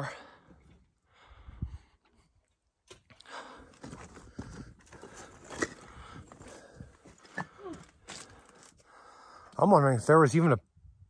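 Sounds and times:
footsteps on loose rock and gravel: 3.7 - 8.8.

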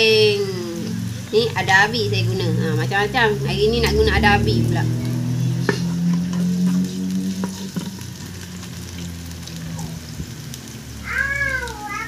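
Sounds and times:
onions sizzling in hot oil: 0.0 - 12.0
child calling out: 11.0 - 12.0.

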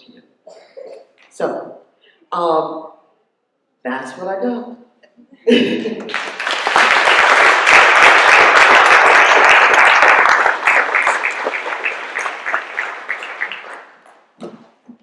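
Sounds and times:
audience applauding: 6.1 - 14.3.

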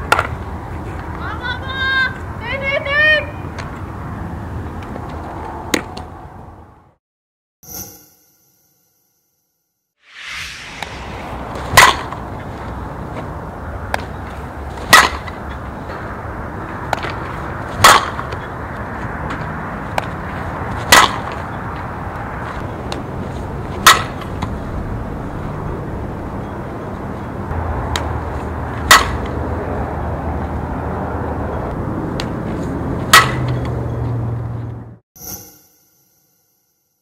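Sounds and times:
bat cracking against ball: 11.5 - 12.4, 14.7 - 15.6, 16.9 - 18.5, 20.8 - 21.5, 23.8 - 24.5, 28.8 - 29.4, 33.1 - 33.7.

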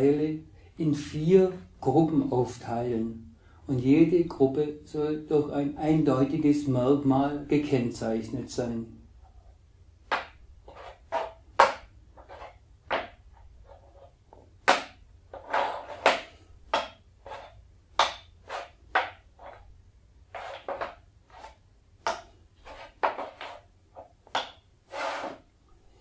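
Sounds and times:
blocks knocking and clacking: 10.1 - 19.7, 20.3 - 25.4
blocks scraping on board: 10.1 - 19.7, 20.3 - 25.5.

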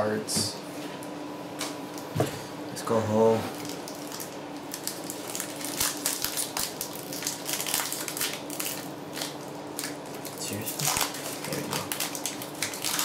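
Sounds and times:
foil wrapper crinkling: 3.5 - 13.0.

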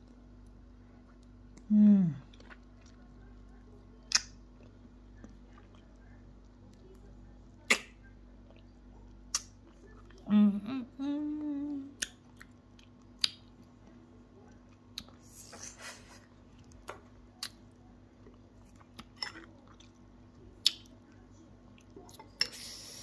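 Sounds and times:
wet chewing of grapes: 0.0 - 7.2, 11.9 - 22.6
steady low hum: 0.0 - 23.0.

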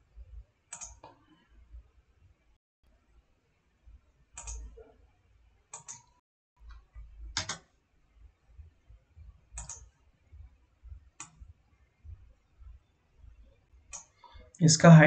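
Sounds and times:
computer mouse clicking: 0.7 - 1.2, 4.4 - 4.8, 5.7 - 7.7, 9.6 - 9.9, 11.2 - 11.4, 13.9 - 14.2
faint low hum: 6.6 - 15.0.

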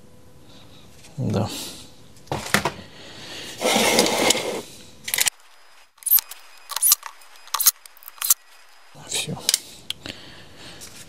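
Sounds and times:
scraping or rustling: 3.6 - 4.7.

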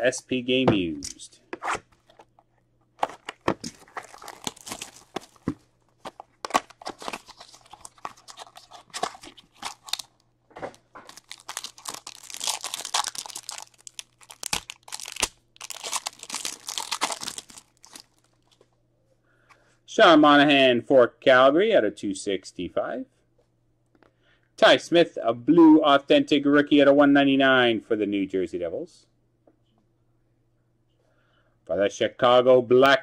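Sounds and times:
wrapper crinkling and tearing: 3.0 - 10.2, 11.0 - 18.6.

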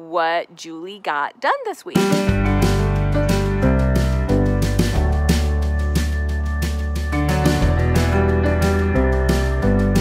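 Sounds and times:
music with steady beat: 2.0 - 10.0
held bass notes: 2.2 - 10.0.

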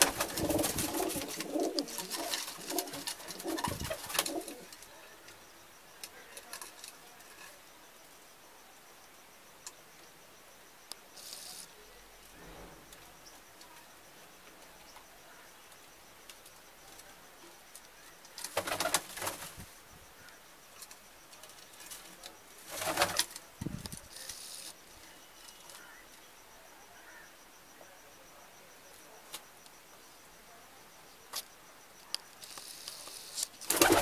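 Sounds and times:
pigeons flapping wings: 0.0 - 4.6, 18.5 - 19.6, 22.7 - 23.3, 33.6 - 34.0.

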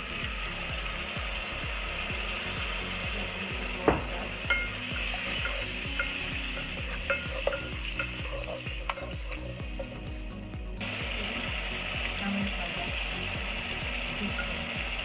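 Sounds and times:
paste sizzling in oil: 0.0 - 15.0
spatula tapping pot: 3.6 - 10.1
spatula scraping pot: 4.1 - 10.0.

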